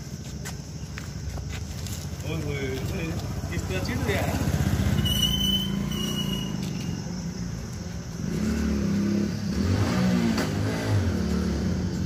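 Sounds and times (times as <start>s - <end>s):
vehicle engine running: 1.7s - 12.0s.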